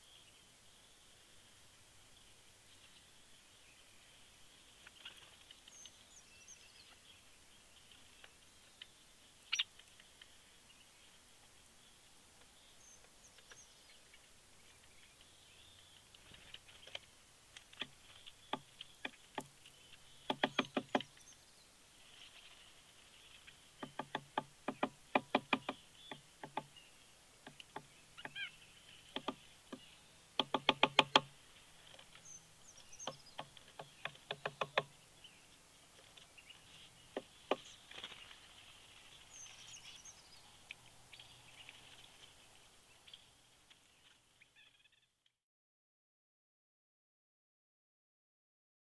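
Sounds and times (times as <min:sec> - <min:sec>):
birds pecking at sticks: 0:12.4 - 0:21.3, 0:22.0 - 0:26.7, 0:27.4 - 0:32.3, 0:32.9 - 0:34.9.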